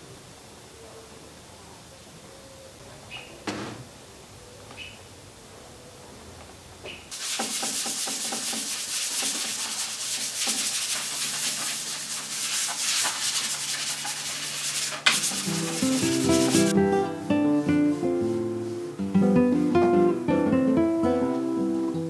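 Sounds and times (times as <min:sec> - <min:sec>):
sandpaper sanding wood: 0:07.1 - 0:16.8, 0:17.8 - 0:18.8
acoustic guitar music: 0:15.2 - 0:22.0.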